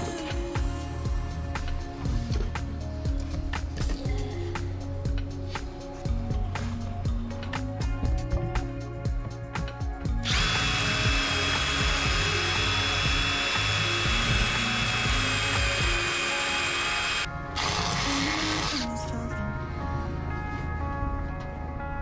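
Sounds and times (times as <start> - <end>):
cordless drill motor running: 10.2 - 18.9.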